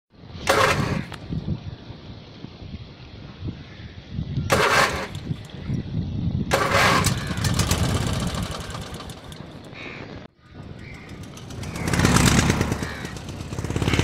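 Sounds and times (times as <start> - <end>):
engine starting and running: 0.4 - 1.2, 4.5 - 5.7, 6.5 - 9.8, 10.7 - 14.0.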